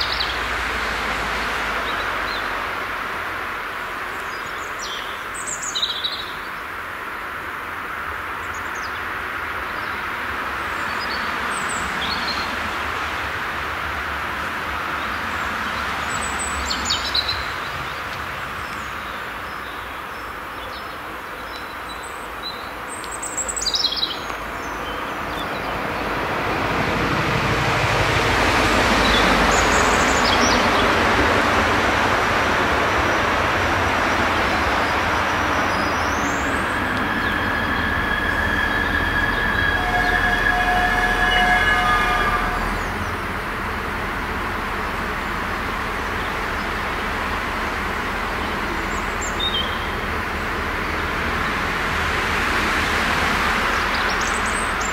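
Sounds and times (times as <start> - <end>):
train running noise: 0.0 - 54.9
train brakes squealing: 35.7 - 43.4.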